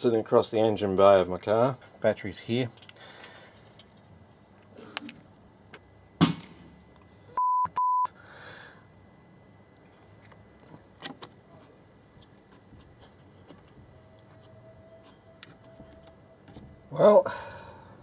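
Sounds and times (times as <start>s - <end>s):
censor bleeps: 7.4s - 8.2s.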